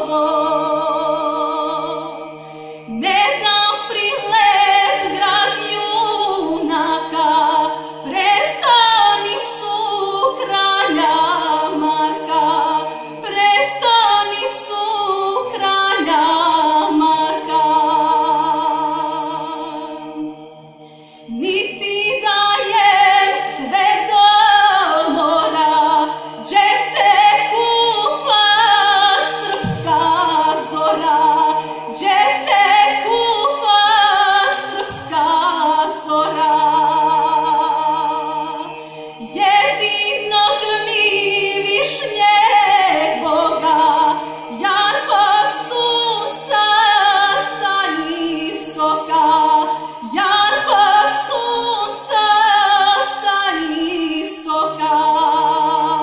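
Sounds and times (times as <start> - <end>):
woman singing with vibrato: 0.0 - 20.3, 21.3 - 56.0
mixed choir singing: 0.0 - 56.0
low held note: 29.5 - 31.2.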